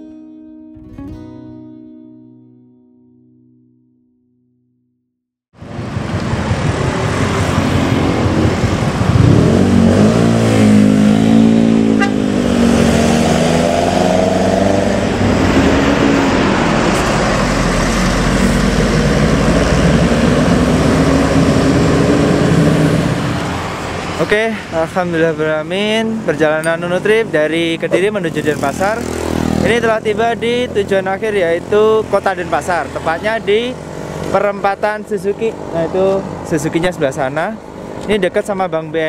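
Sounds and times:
vehicle engine revving: 5.6s - 38.2s
street traffic: 5.6s - 39.0s.

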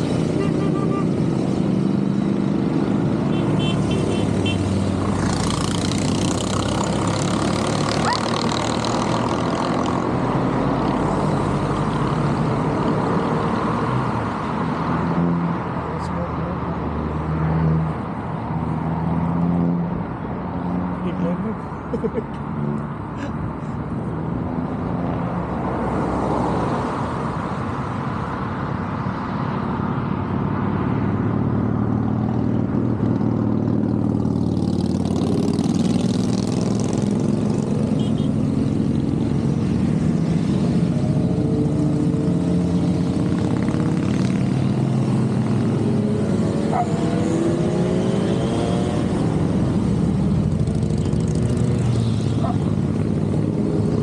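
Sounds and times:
motorcycles riding past: 0.0s - 18.0s, 23.8s - 54.0s
motorcycle engines revving: 0.0s - 54.0s.

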